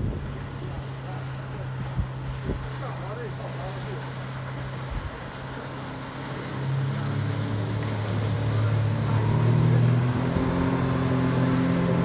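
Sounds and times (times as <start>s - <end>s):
boat motor running at speed: 0.0s - 12.0s
rush of boat wake: 0.0s - 12.0s.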